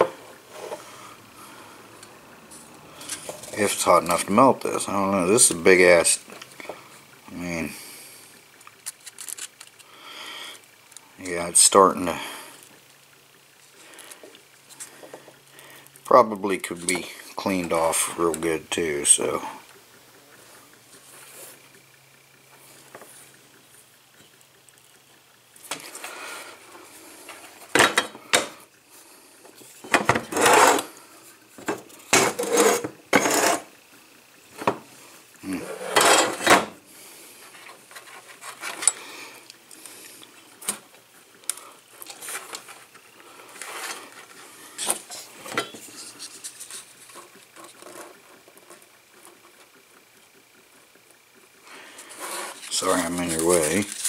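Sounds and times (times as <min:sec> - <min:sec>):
wires rubbing and scraping: 0:29.6 - 0:30.9, 0:31.9 - 0:33.8, 0:35.5 - 0:36.4, 0:37.4 - 0:39.0, 0:42.0 - 0:49.7, 0:51.9 - 0:54.0.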